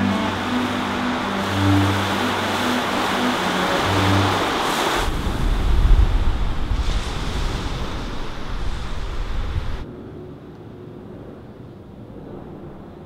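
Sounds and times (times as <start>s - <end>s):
rushing wind and surf: 0.0s - 9.9s.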